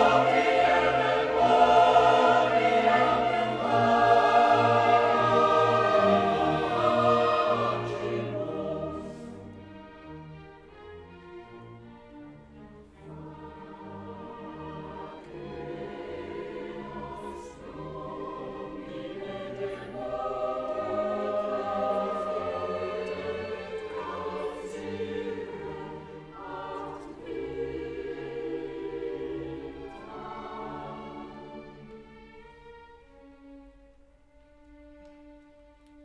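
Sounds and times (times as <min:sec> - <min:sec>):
choir singing held notes: 0:00.0 - 0:09.6, 0:13.0 - 0:32.1
orchestra: 0:00.0 - 0:36.0.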